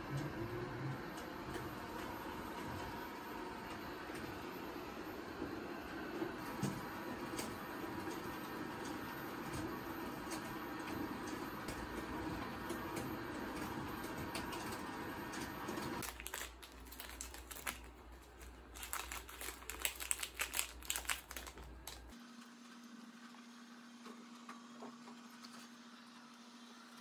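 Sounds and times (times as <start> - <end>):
paper pages rustling: 16.0 - 22.1.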